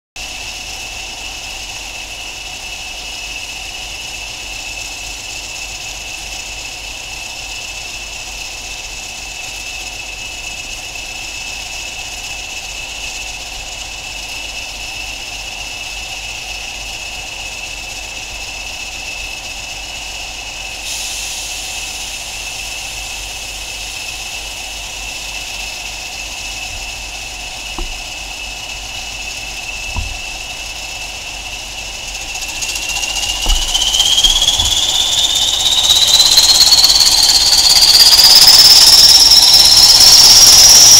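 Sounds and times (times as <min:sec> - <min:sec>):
diesel locomotive engines idling: 0:00.2 - 0:40.9
hiss: 0:00.2 - 0:40.9
steady high whistle: 0:20.4 - 0:40.9.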